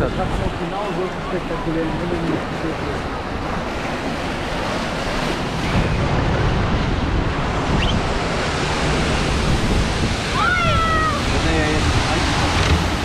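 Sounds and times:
water rushing through rapids: 0.0s - 13.0s
wind buffeting microphone: 0.0s - 13.0s.

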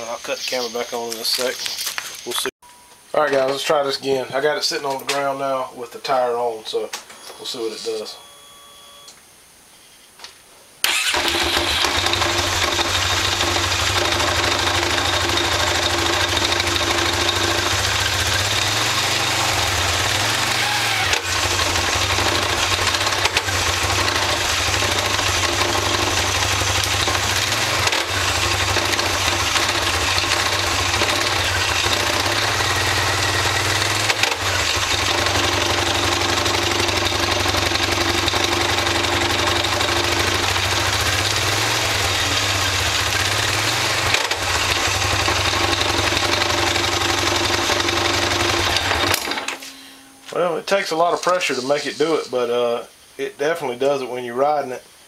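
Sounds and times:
quad bike engine running: 10.9s - 49.4s.

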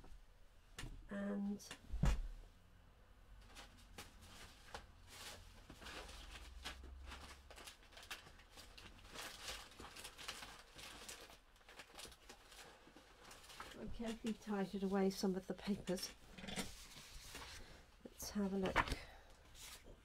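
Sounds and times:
paper and card rustling: 15.7s - 20.0s.

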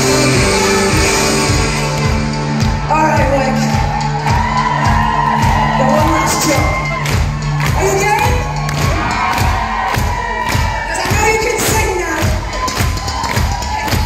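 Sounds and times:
live pop-rock band playing: 0.0s - 9.8s
crowd cheering and singing along: 0.0s - 14.0s.

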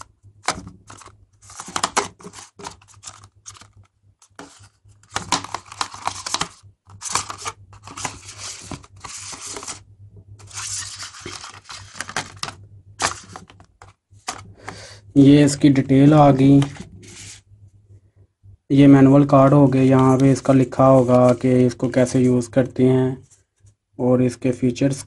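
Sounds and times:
cardboard packaging rustling: 0.0s - 9.8s, 10.4s - 14.8s.

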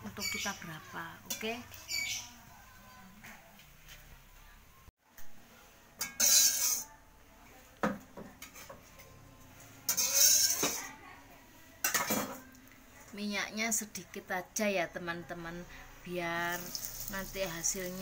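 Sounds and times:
metal utensils scraping a wok: 6.0s - 7.0s, 8.4s - 11.0s.

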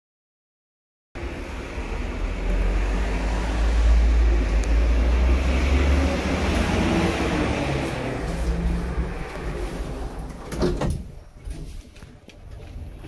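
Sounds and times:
lift doors sliding open: 5.8s - 13.0s
lift rumble and hum: 6.2s - 13.0s.

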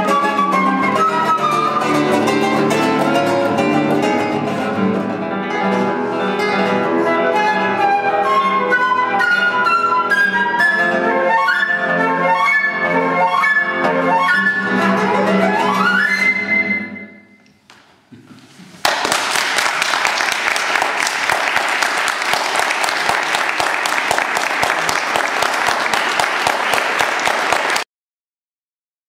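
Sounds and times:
flute playing: 0.0s - 4.8s, 6.2s - 17.4s
classical guitar playing: 0.0s - 17.5s
audience applause: 18.8s - 27.9s.

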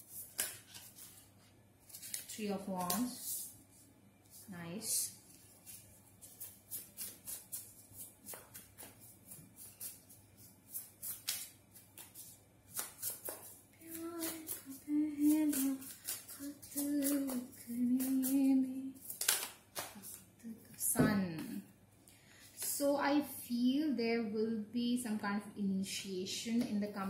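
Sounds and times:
cards being shuffled: 0.0s - 3.4s, 5.3s - 20.2s
woman humming: 13.8s - 19.0s.

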